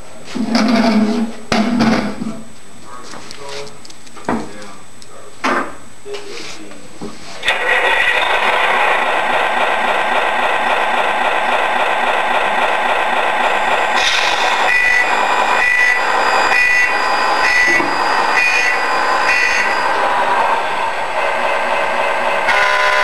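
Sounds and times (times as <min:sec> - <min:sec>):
diesel engine sound unit: 0:07.4 - 0:23.0
reversing beeper: 0:13.6 - 0:21.0, 0:22.5 - 0:23.0.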